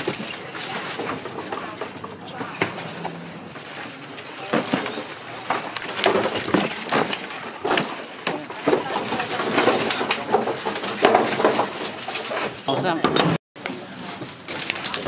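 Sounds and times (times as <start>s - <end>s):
background voices: 0.0s - 10.4s.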